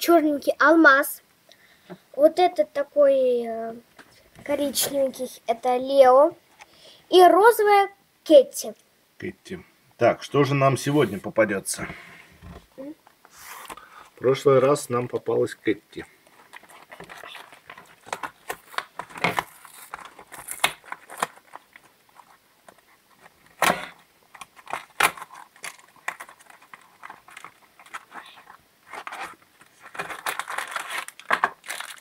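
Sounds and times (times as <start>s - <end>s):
packaging crackling and tearing: 16.3s - 32.0s.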